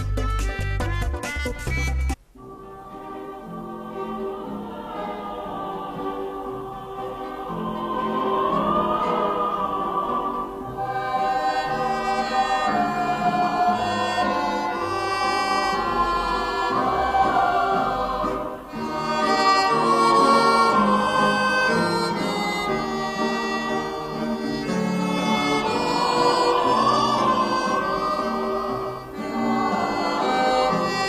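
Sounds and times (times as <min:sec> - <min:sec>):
instrumental accompaniment: 0:00.0 - 0:31.0
choir singing: 0:02.4 - 0:31.0.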